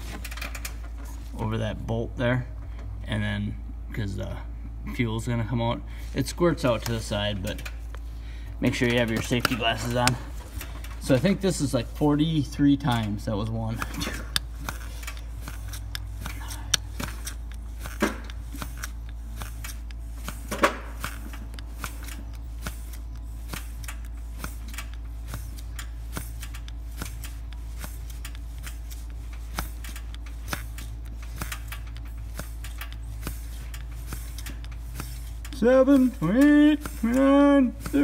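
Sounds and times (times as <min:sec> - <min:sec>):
primer plunger clicking: 0:12.8 - 0:38.0.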